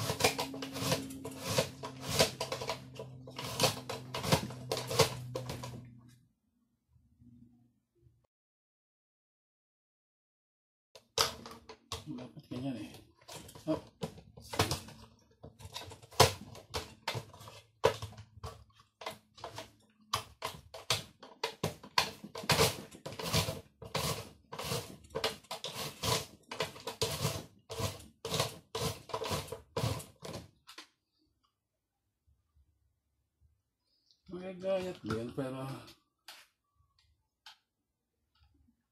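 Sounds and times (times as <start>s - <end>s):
mandoline slicer scraping strokes: 0.0s - 5.2s.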